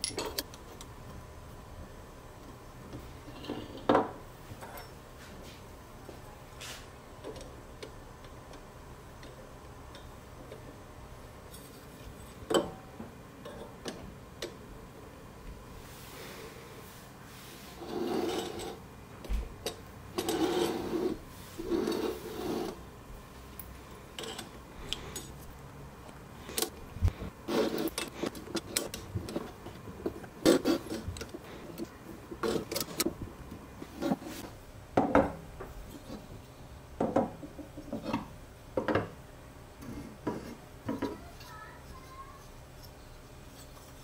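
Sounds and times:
metal parts clicking and knocking: 0.0s - 0.9s
metal scraping and sliding on wood: 17.3s - 18.9s, 20.2s - 22.8s, 26.5s - 33.2s.

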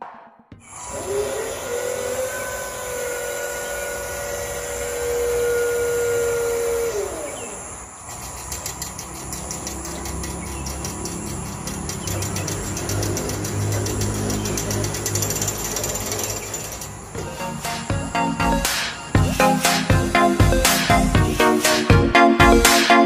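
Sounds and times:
motor whining: 0.6s - 21.4s
rapid even clicking: 7.3s - 22.0s.

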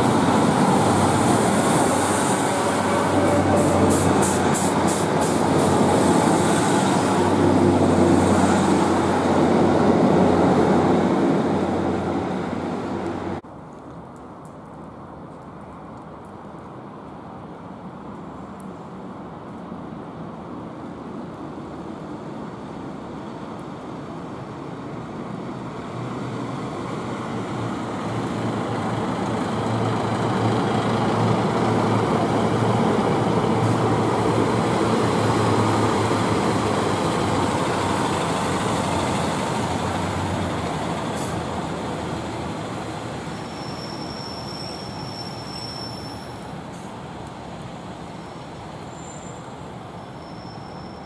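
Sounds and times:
train engine hum: 0.0s - 13.4s, 21.5s - 51.0s
high wheel squeal: 43.3s - 46.9s, 48.2s - 51.0s.

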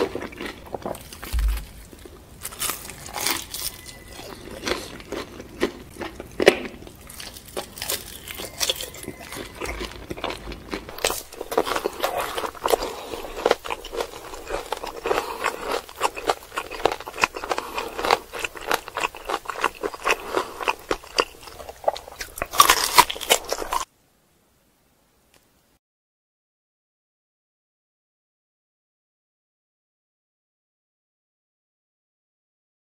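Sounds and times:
wet chewing: 0.0s - 23.9s
crunchy bites of fried chicken: 9.6s - 23.9s.

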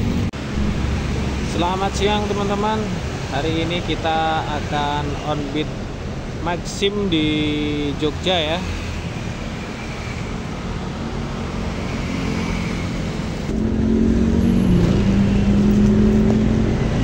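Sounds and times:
road noise: 0.0s - 17.0s.

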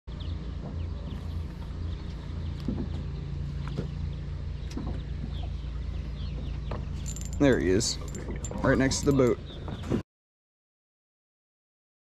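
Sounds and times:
boat motor humming: 0.1s - 10.0s.

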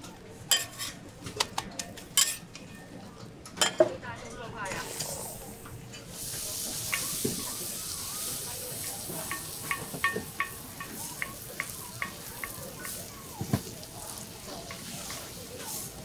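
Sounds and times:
batter sizzling on griddle: 4.8s - 16.0s.

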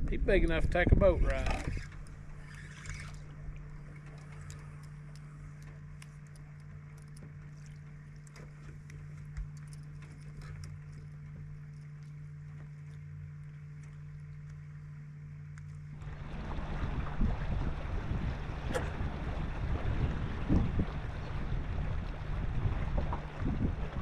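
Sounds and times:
boat motor humming: 0.0s - 24.0s
water lapping at hull: 0.0s - 24.0s
light clicks: 1.3s - 14.7s.

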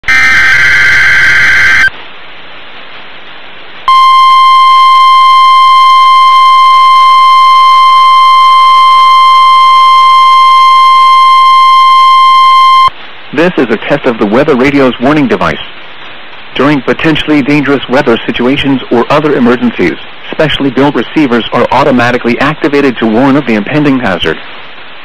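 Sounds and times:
screeching digital data burst: 0.0s - 1.9s
steady alarm tone: 0.0s - 1.9s, 3.9s - 12.9s
radio hiss: 0.0s - 2.0s, 3.8s - 25.0s.

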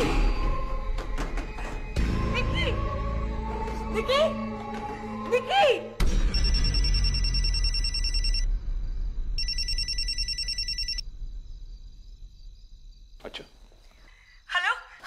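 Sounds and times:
phone ringing electronic trill: 6.3s - 8.5s, 9.4s - 11.0s.

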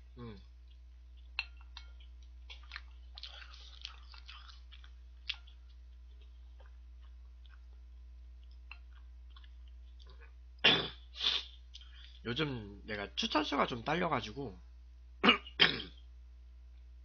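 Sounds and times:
wet chewing: 0.6s - 10.4s
person coughing: 10.6s - 11.0s, 15.2s - 16.0s.

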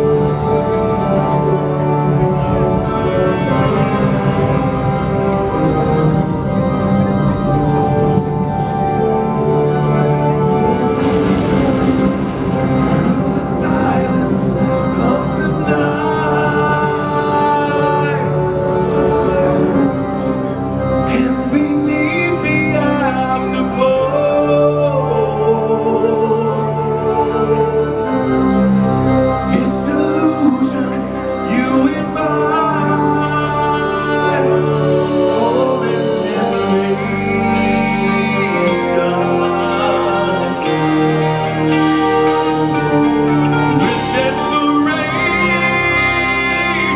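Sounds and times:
bass: 0.0s - 46.9s
keyboard chords: 0.0s - 46.9s
live metal band playing: 0.0s - 46.9s
man singing lead vocal: 0.0s - 46.9s
cymbal crash: 10.4s - 15.1s.

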